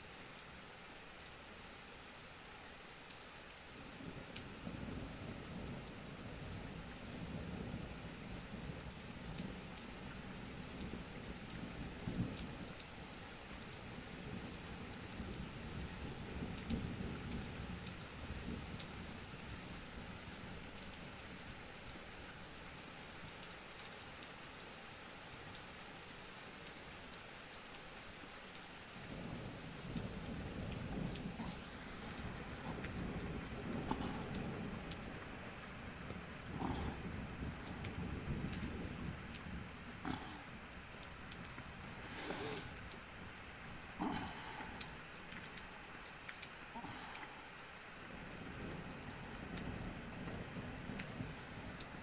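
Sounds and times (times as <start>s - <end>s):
steady rain falling: 0.0s - 52.0s
thunder rumbling: 29.2s - 35.2s.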